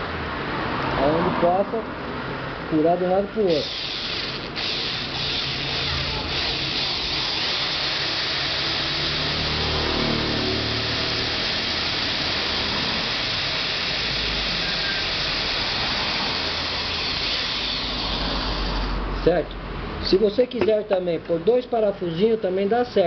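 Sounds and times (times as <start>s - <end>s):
cordless drill boring: 3.5s - 19.0s.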